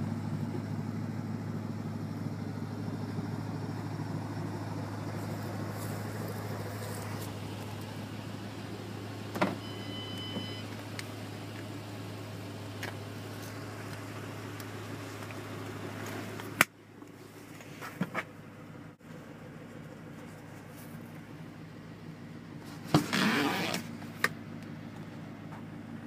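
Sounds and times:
car door shutting: 9.3s - 10.7s, 22.8s - 24.0s
short beep: 9.6s - 10.7s.

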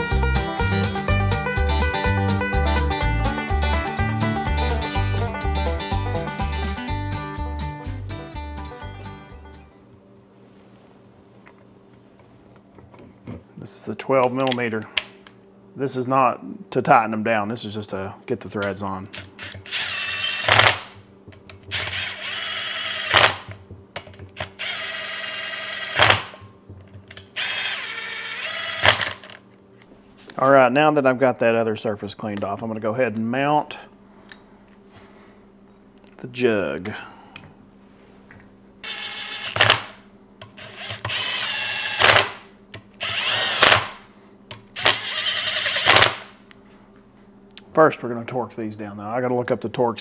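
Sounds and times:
cordless drill motor whine: 19.1s - 21.0s, 21.7s - 23.5s, 24.4s - 26.4s, 27.3s - 29.4s, 38.8s - 42.4s, 43.0s - 44.0s, 44.8s - 46.3s.

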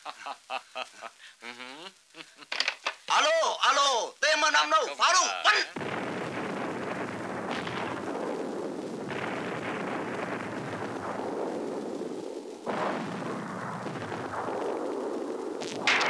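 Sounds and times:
shells exploding: 5.7s - 16.0s
guns firing: 5.8s - 16.0s.

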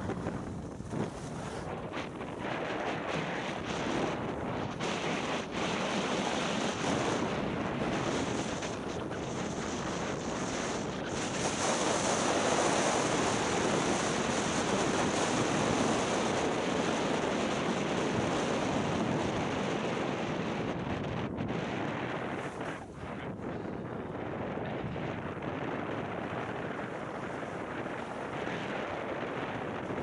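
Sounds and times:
skis sliding on snow: 0.0s - 19.6s, 21.7s - 23.9s, 25.4s - 30.0s
wind on microphone: 0.0s - 30.0s.

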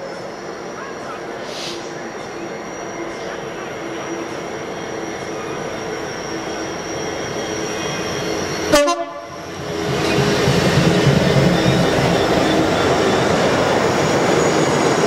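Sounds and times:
diesel locomotive passing: 0.0s - 15.0s.

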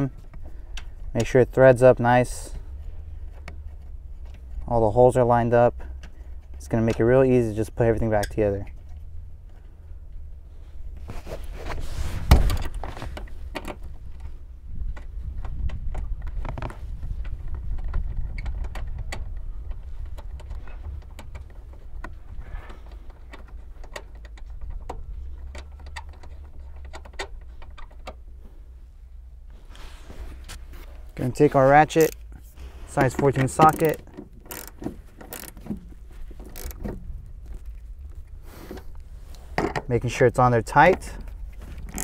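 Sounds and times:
small metallic clicks and taps: 33.0s - 38.9s.

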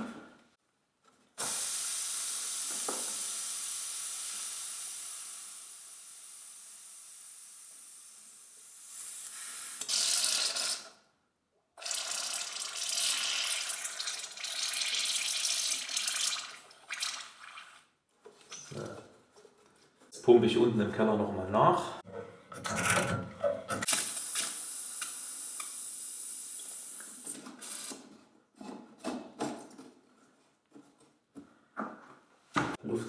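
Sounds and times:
air hissing from pipe plug: 1.4s - 10.9s, 23.8s - 28.1s
air and water spitting into bucket: 7.7s - 11.0s.

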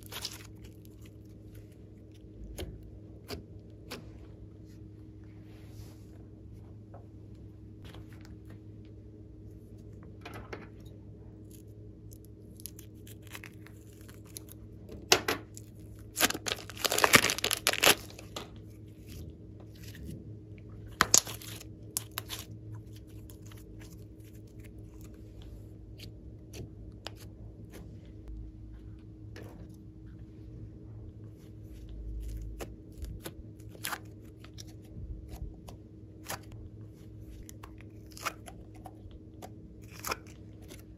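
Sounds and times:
faint steady hum: 0.0s - 40.9s
slime crackling and popping: 16.1s - 18.3s, 21.0s - 22.5s.

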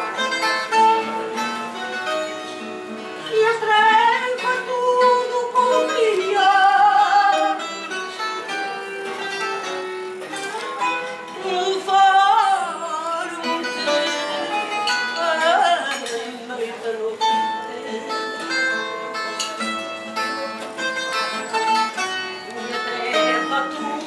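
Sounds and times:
guitars picking accompaniment: 0.0s - 24.0s
woman singing with vibrato: 3.2s - 8.0s, 11.2s - 19.0s, 22.5s - 24.0s.

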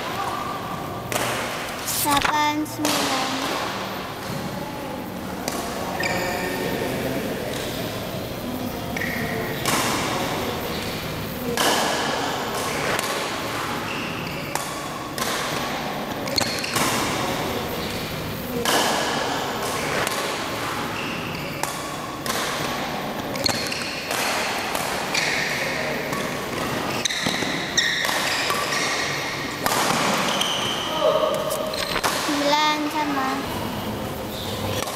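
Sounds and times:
rackets striking shuttlecock: 1.1s - 4.5s, 9.0s - 33.3s
shoes squeaking on court: 5.5s - 6.6s, 8.9s - 11.1s, 12.6s - 15.3s, 19.7s - 22.4s, 23.3s - 34.9s.

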